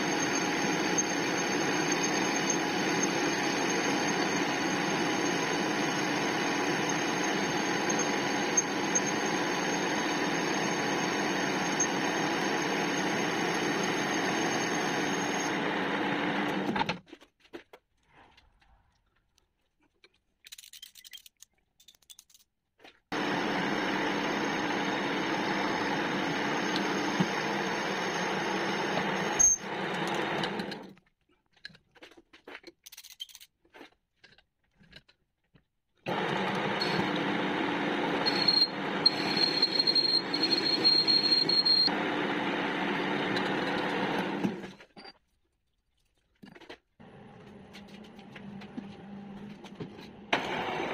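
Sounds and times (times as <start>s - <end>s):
metal lathe running: 0.0s - 16.7s, 23.2s - 30.8s, 36.1s - 44.6s
thin high whistle: 38.2s - 41.9s.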